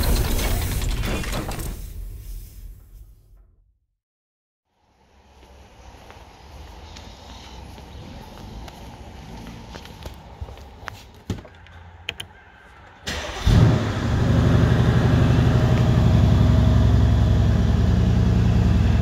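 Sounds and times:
car engine starting and idling: 13.0s - 19.0s.

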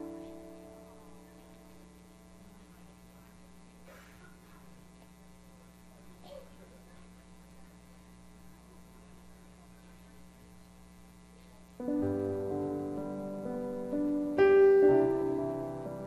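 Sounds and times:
piano music: 0.0s - 1.9s, 11.8s - 16.0s
electrical mains hum: 0.0s - 16.0s
faint room noise: 0.0s - 16.0s.

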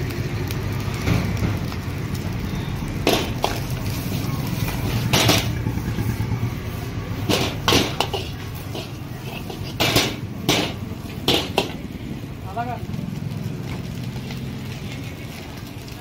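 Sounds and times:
steady low rumble: 0.0s - 14.0s
metal spatula scraping a wok: 3.0s - 11.8s.

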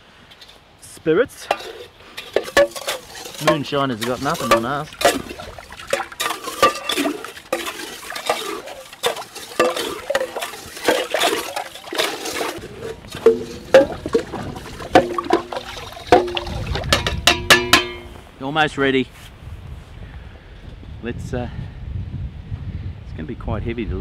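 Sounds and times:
metal cup scraping pot: 1.4s - 18.1s
water sloshing and splashing: 1.5s - 18.1s
knocks on ringing pot: 16.1s - 18.1s.

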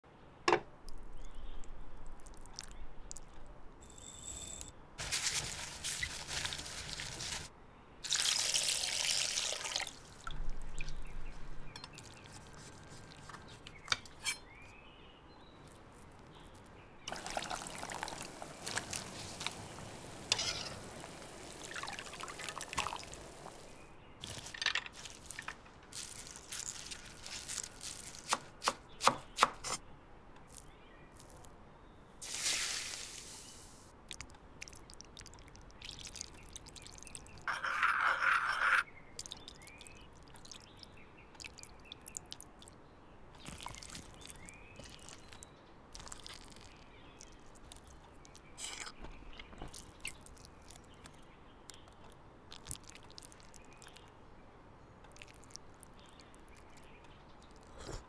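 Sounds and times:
water pouring and trickling: 0.9s - 4.4s, 5.0s - 13.3s, 16.2s - 28.3s, 32.2s - 42.8s, 43.4s - 54.2s, 55.1s - 57.8s
knife chopping on wooden board: 28.3s - 29.8s.

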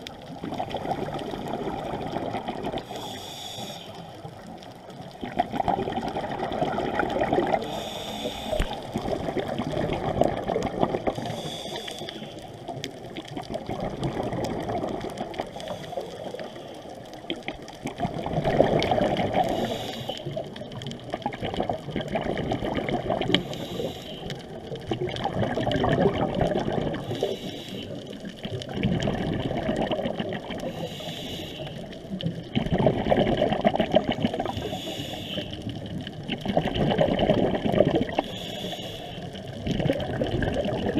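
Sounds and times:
exhaled bubbles bubbling: 0.0s - 40.9s
regulator inhale hiss: 2.8s - 4.2s, 7.6s - 9.0s, 11.1s - 12.7s, 15.4s - 17.0s, 19.4s - 20.4s, 23.3s - 24.6s, 27.0s - 28.2s, 30.6s - 32.2s, 34.4s - 35.9s, 38.1s - 39.5s.

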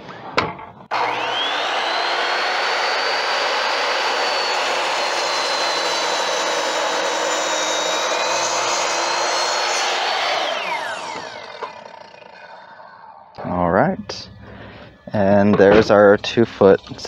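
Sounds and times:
miter saw motor whine: 0.9s - 13.4s.

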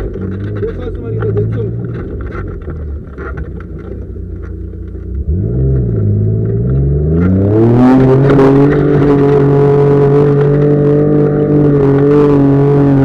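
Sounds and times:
knocks and rattles: 0.0s - 5.2s
car engine revving: 0.0s - 13.0s.

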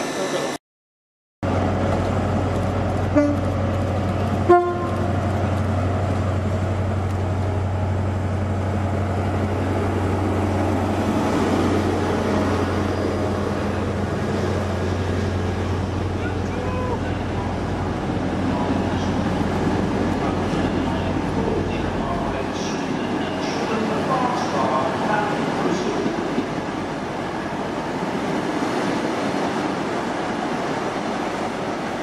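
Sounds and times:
diesel train engine drone: 0.0s - 0.6s, 1.4s - 32.0s
train horn toots: 3.1s - 3.6s, 4.4s - 5.2s.

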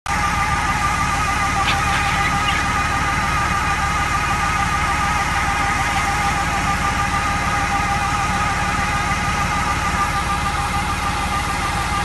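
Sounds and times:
steady machine whine: 0.1s - 12.0s
motor pulsing: 1.2s - 8.2s.

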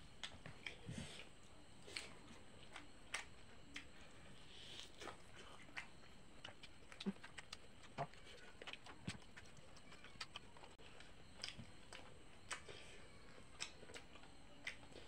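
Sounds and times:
wet chewing smacks: 4.6s - 12.9s, 13.5s - 15.0s.

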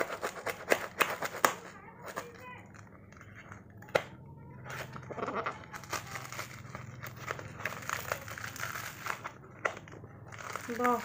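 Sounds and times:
packing tape crinkling: 4.7s - 11.0s.

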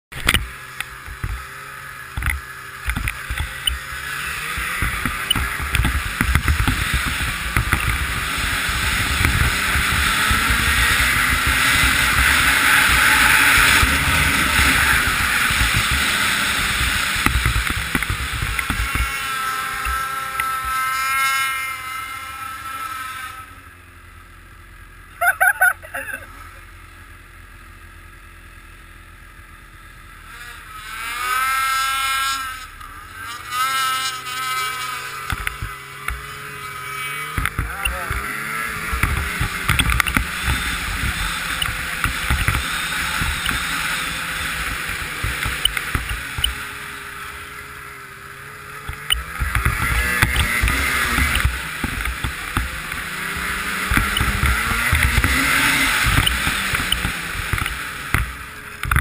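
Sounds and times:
snowmobile engine running hard: 0.1s - 59.0s
sled knocking and clattering: 2.1s - 20.8s, 37.2s - 46.7s, 48.8s - 59.0s.

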